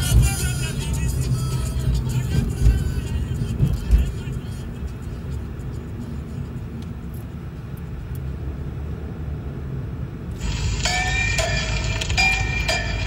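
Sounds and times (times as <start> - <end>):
car cabin road rumble: 0.0 - 13.0
ringing bell-like notes: 10.4 - 13.0.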